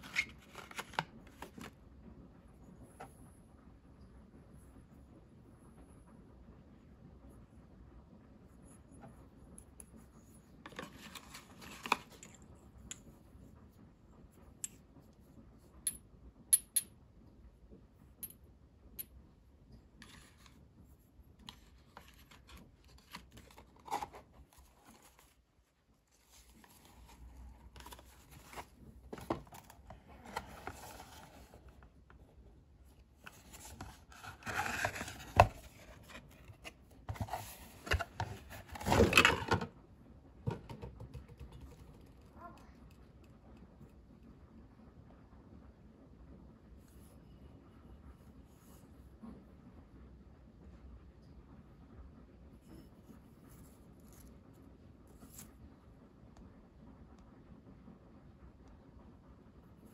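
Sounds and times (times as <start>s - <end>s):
paper and cardboard rustling: 0.0s - 1.7s, 10.6s - 12.3s, 21.4s - 25.4s, 26.1s - 31.9s, 33.2s - 39.7s.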